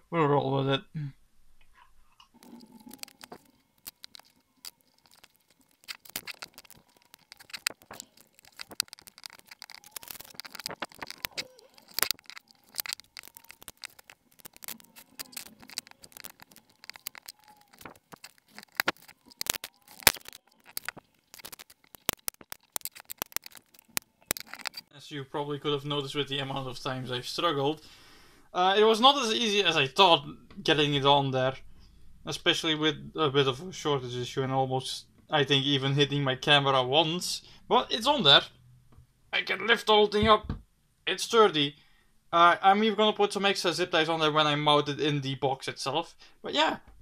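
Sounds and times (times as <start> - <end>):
zip ties clicking and rattling: 2.4 - 24.9.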